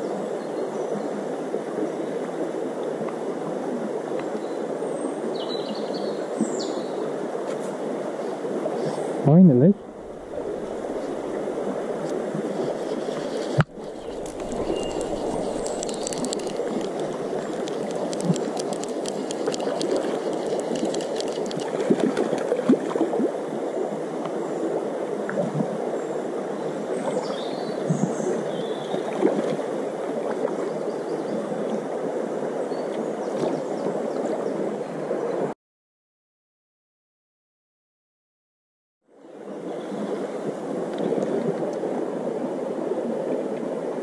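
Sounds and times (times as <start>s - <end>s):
stream running: 0.0s - 35.5s, 39.1s - 44.0s
fish splashing at surface: 12.2s - 23.1s.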